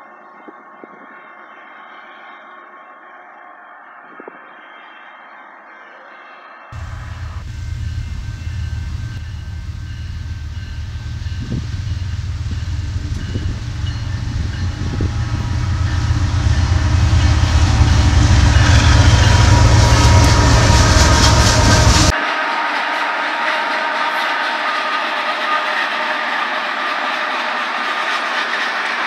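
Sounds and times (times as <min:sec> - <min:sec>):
diesel locomotive rumble: 0:06.8 - 0:22.1
train wheels on rail: 0:06.8 - 0:22.2, 0:22.9 - 0:29.0.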